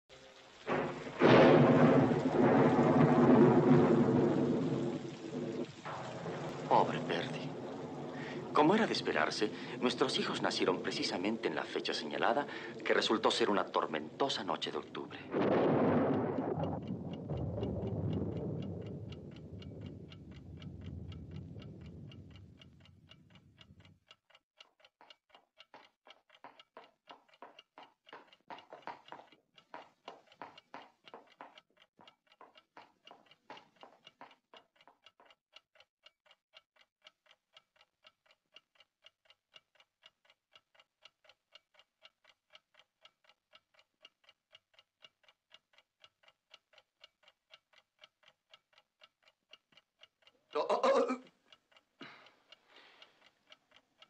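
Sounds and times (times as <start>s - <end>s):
wall clock ticking: 0.3s - 54.0s
thunder rumbling: 0.7s - 23.1s.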